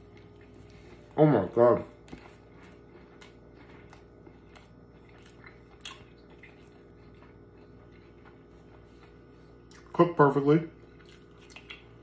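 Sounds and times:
low steady hum: 0.0 - 12.0
wet chewing: 1.8 - 10.0, 10.8 - 12.0.

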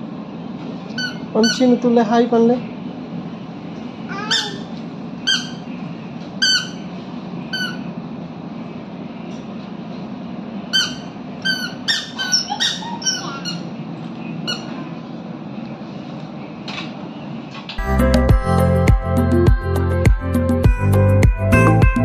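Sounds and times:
squeaky sandals squeaking: 1.0 - 1.8, 5.3 - 5.7, 6.4 - 6.9, 7.5 - 7.9, 10.7 - 13.8, 14.4 - 14.9.

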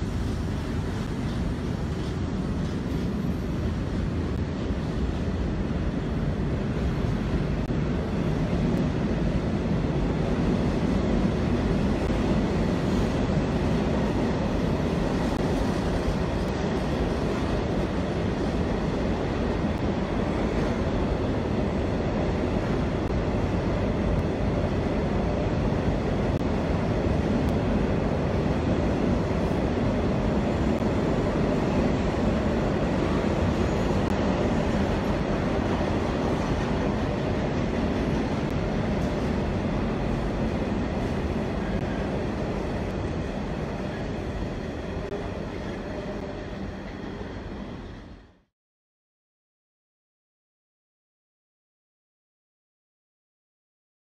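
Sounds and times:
train wheels on rail: 0.0 - 48.5.

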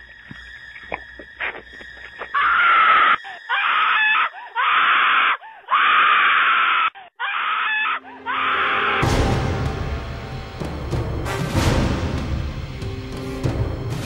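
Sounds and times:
person screaming: 2.4 - 9.0.

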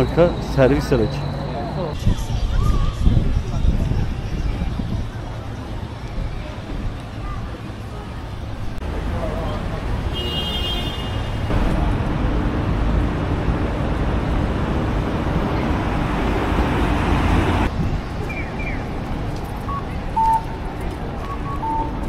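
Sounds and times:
passing cars rushing: 11.0 - 17.8.

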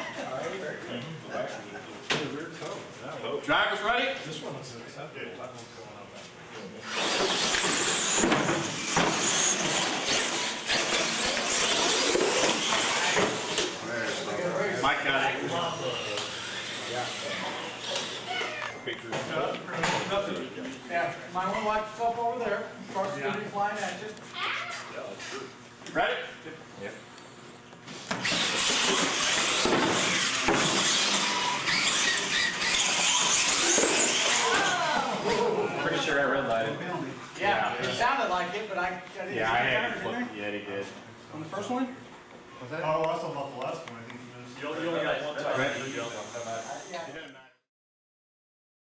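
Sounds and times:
toy truck motors and tyres rushing: 6.9 - 13.8, 28.2 - 34.7.

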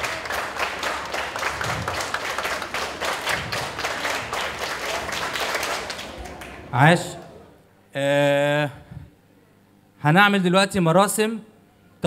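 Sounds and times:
group rhythmic clapping: 0.0 - 7.4.

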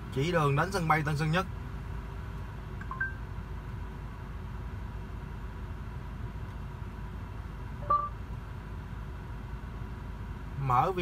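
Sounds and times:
car cabin low rumble: 0.0 - 11.0
short electronic beep: 7.8 - 8.2.

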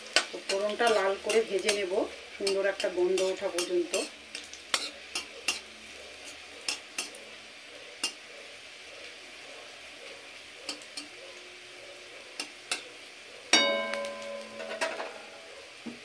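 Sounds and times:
food sizzling in oil: 0.0 - 16.0
spatula clicking against pan: 0.1 - 5.6, 6.6 - 7.2, 8.0 - 8.2, 10.7 - 11.1, 12.4 - 12.8.

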